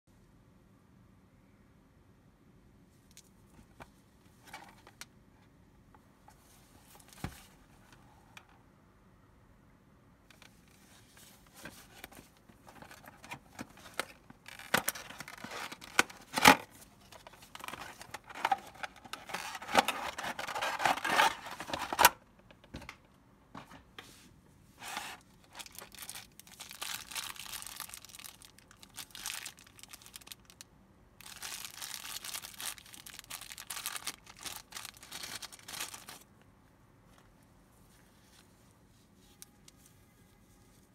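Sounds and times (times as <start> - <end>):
plastic packaging crinkling: 11.6 - 22.2, 24.8 - 30.6, 31.2 - 36.3.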